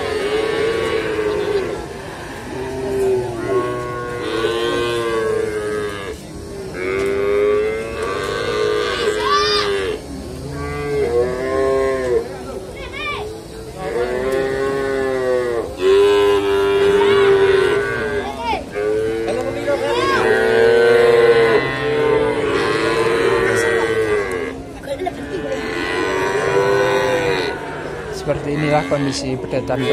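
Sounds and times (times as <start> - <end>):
calves bawling: 13.1 - 29.9.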